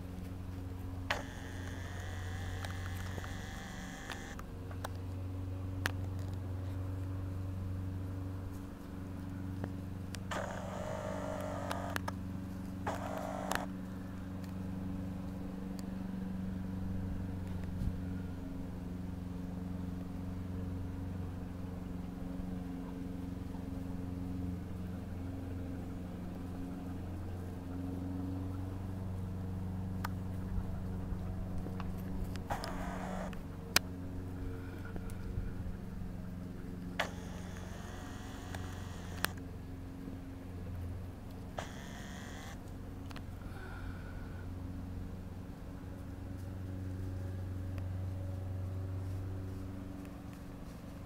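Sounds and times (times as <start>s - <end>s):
motor humming: 0.0s - 5.0s, 9.6s - 14.5s, 30.3s - 39.6s, 41.0s - 44.4s
faint clicks: 1.1s - 5.0s, 9.6s - 12.2s, 31.6s - 33.9s, 37.0s - 39.4s, 41.3s - 43.2s.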